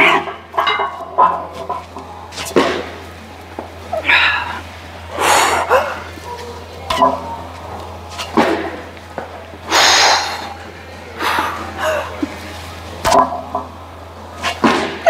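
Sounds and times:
woman grunting: 3.9 - 4.6, 5.4 - 6.1, 11.2 - 12.2
hard forceful breaths: 4.0 - 6.2, 9.6 - 10.6.

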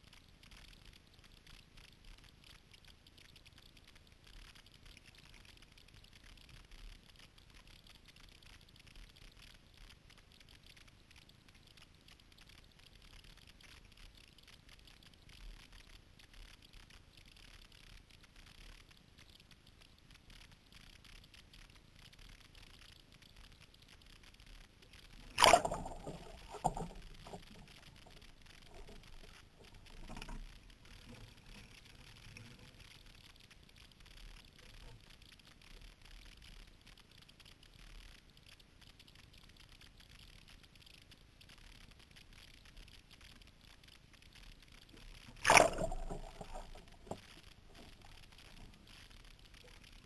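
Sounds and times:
hull moving through water: 24.3 - 33.4, 44.8 - 50.0
underwater bubbling splashes: 24.8 - 32.8, 45.1 - 50.0
kayak paddle dipping in water: 25.1 - 31.6, 45.3 - 48.6
loud splash: 25.3 - 26.9.

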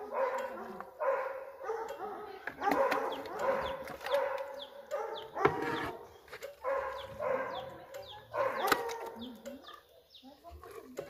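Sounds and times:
dogs barking and whining: 0.0 - 10.1.

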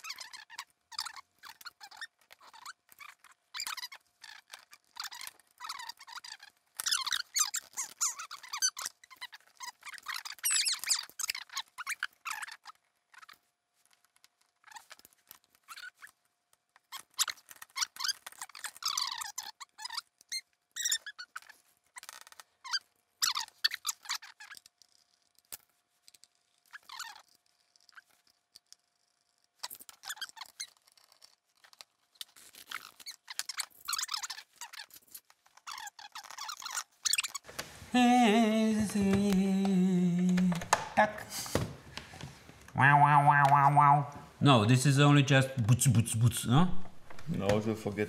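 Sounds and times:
plastic case squeaks and clicks: 0.0 - 16.2, 16.8 - 25.5, 26.1 - 37.5.

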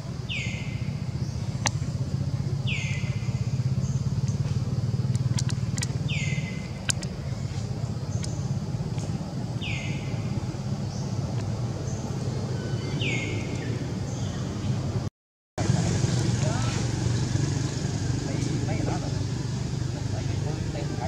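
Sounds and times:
low motor hum: 0.0 - 21.0
sharp clicks: 5.0 - 6.0, 6.8 - 7.2, 8.2 - 9.2.

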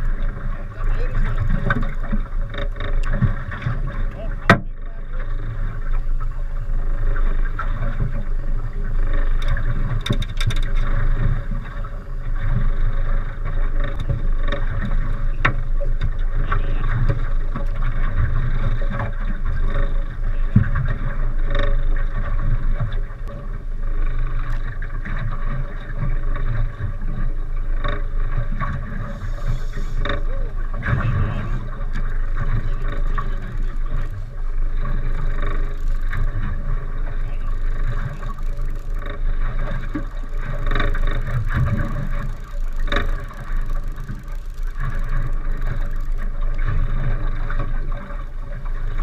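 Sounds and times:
low rumble: 0.0 - 49.0
water sounds: 0.0 - 49.0
fishing reel clicks and knocks: 1.3 - 4.6, 8.9 - 25.4, 31.6 - 47.8.

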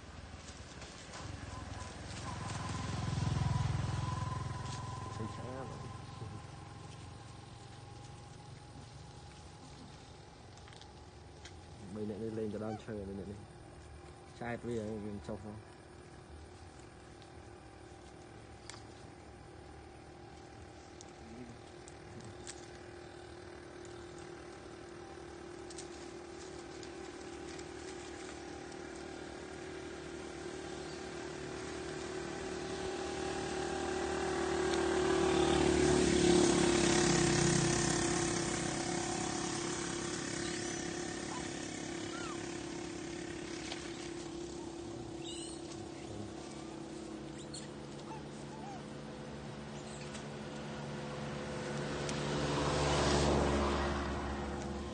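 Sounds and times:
engine hum: 0.0 - 54.9
high animal chirps and squeaks: 40.4 - 42.4, 45.2 - 46.1, 47.3 - 48.8.

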